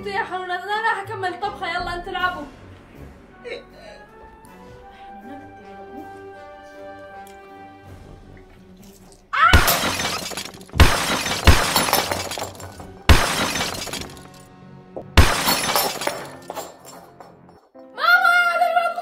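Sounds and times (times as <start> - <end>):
tinkling of glass shards: 8.8 - 14.4, 15.2 - 17.7
glass shattering on hard floor: 9.5 - 14.4, 15.2 - 17.6.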